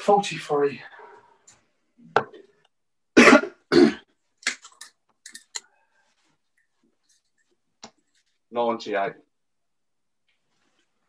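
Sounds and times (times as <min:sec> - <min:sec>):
person coughing: 0:03.2 - 0:04.1.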